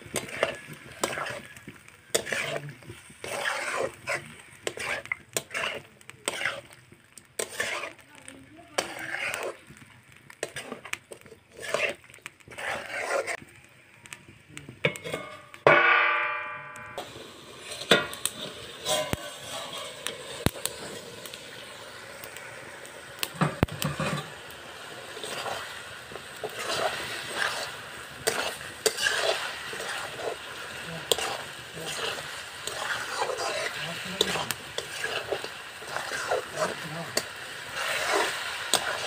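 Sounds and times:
metal spatula scraping wok: 0:00.0 - 0:13.4, 0:14.8 - 0:39.0
food sizzling and crackling: 0:00.0 - 0:39.0
metal lid clanging on wok: 0:14.8 - 0:17.1.

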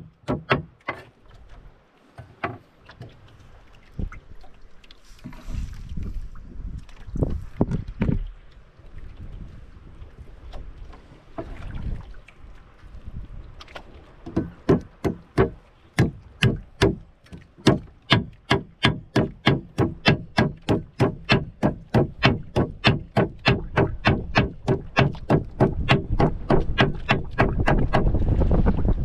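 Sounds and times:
sharp knocks: 0:00.0 - 0:01.0, 0:14.3 - 0:28.2.

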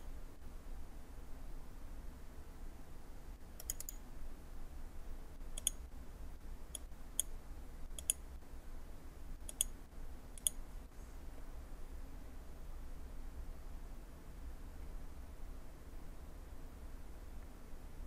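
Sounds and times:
faint low hum: 0:00.0 - 0:18.0
mouse and keyboard clicks: 0:03.6 - 0:04.0, 0:05.6 - 0:05.8, 0:07.9 - 0:08.2, 0:09.5 - 0:09.8, 0:10.4 - 0:10.6.

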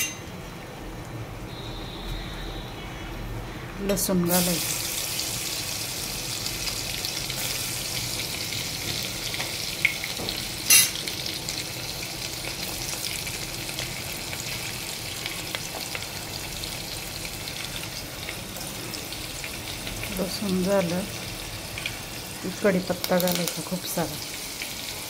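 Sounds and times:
onion and garlic sizzling in oil: 0:03.8 - 0:25.0.

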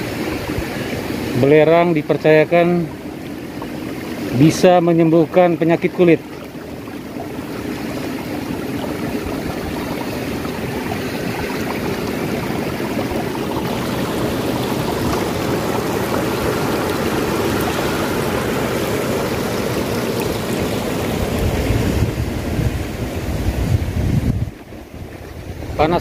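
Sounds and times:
stream running over rocks: 0:00.0 - 0:26.0
wind buffeting microphone: 0:06.6 - 0:26.0.

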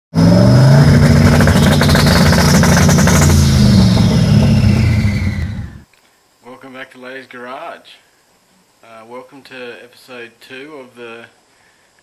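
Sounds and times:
car engine revving loudly: 0:00.1 - 0:05.9
sharp engine crackles: 0:00.2 - 0:05.9
high whistle: 0:01.4 - 0:05.9.

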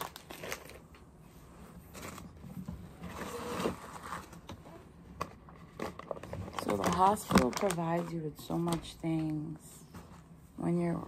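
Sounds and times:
diapers rustling: 0:05.8 - 0:09.4.

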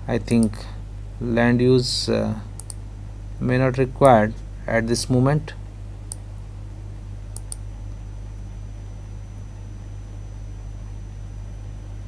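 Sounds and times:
steady low hum: 0:00.0 - 0:12.0
computer mouse clicks: 0:02.6 - 0:02.8, 0:07.4 - 0:07.6.

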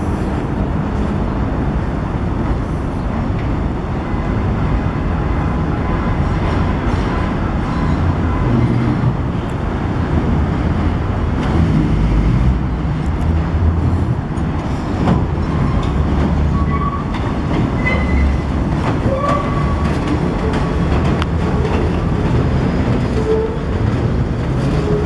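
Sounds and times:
train rumbling on elevated track: 0:00.0 - 0:25.0
wheels clicking over rail joints: 0:12.9 - 0:25.0
wheels squealing: 0:15.2 - 0:25.0.

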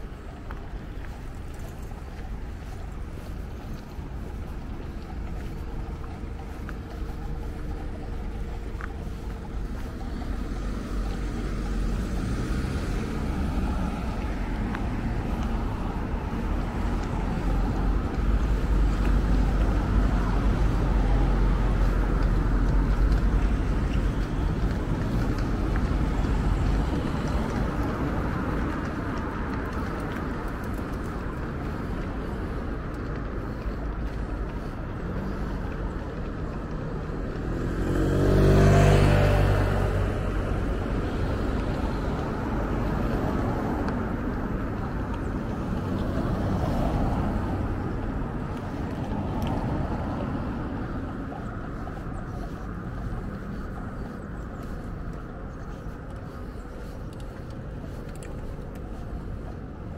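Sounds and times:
vehicle passing: 0:00.0 - 0:59.9.

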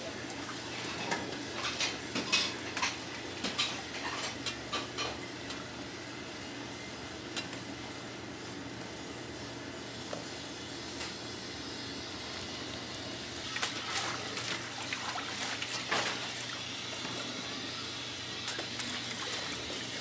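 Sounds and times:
boiling water and burner hiss: 0:00.0 - 0:20.0.

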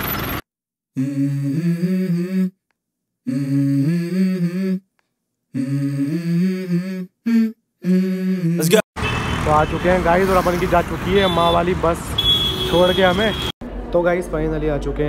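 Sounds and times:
low voice humming melody: 0:01.0 - 0:02.6, 0:03.3 - 0:04.8, 0:05.6 - 0:08.8.

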